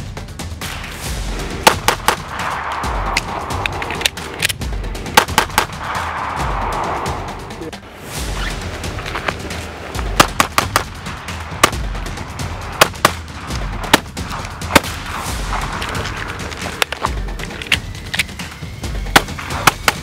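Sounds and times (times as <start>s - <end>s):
background music with pulsing beat: 0.0s - 20.0s
handgun shots: 1.6s - 2.3s, 5.2s - 5.8s, 10.2s - 10.9s.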